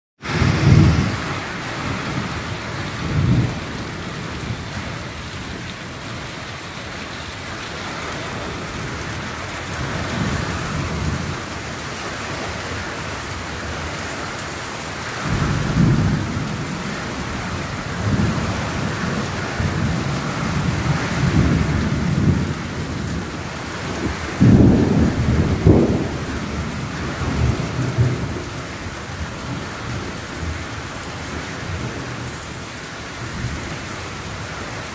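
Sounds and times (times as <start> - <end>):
thunder rumbling: 0.2 - 6.3, 15.2 - 30.6
heavy rain pouring: 0.2 - 34.9.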